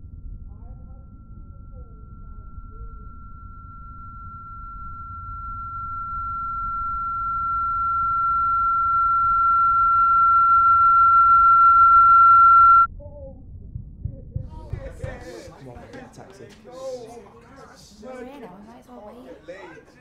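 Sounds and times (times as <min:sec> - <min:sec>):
high-pitched ringing tone: 0:00.0 - 0:12.9
low rumble: 0:00.0 - 0:14.9.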